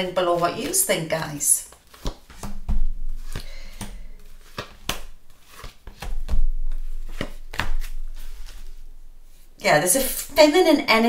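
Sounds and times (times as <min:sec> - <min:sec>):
cards tapping and clicking: 0:01.7 - 0:06.4, 0:07.0 - 0:08.6.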